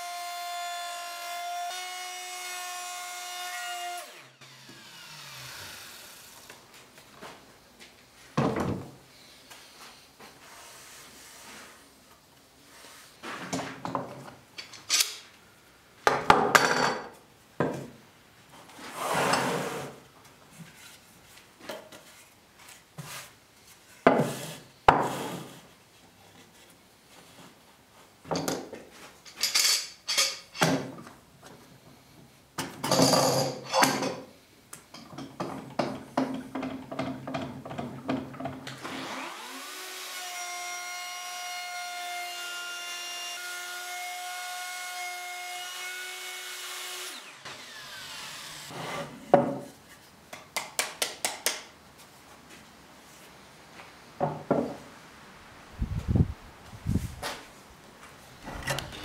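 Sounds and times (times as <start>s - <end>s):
power tool whining: 4.0s - 6.5s, 58.4s - 59.0s.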